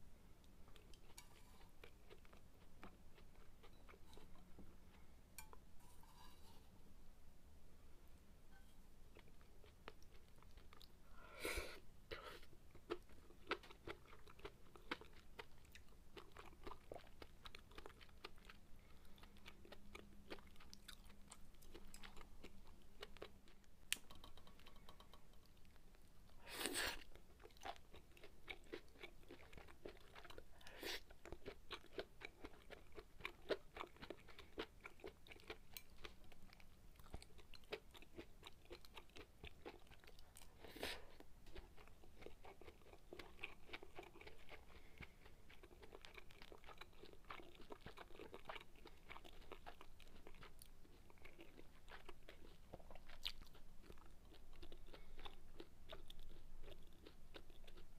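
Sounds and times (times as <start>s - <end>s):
person chewing food: 0.6s - 6.1s, 9.1s - 57.9s.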